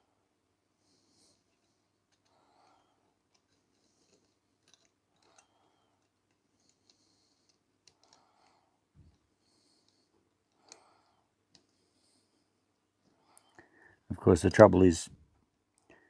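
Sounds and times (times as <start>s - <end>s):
faint clicks of clock parts: 1.3s - 13.8s.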